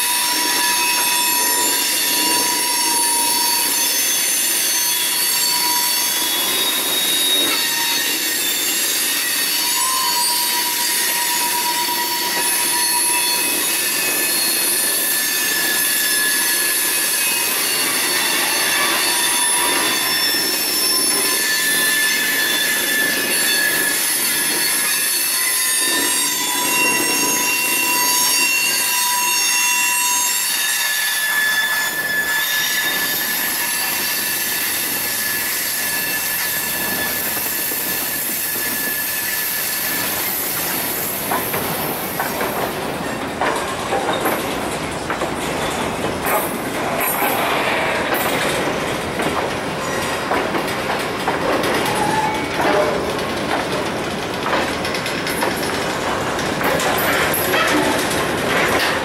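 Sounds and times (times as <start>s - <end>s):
train wheels squealing: 0.0s - 59.0s
wheels clicking over rail joints: 39.8s - 59.0s.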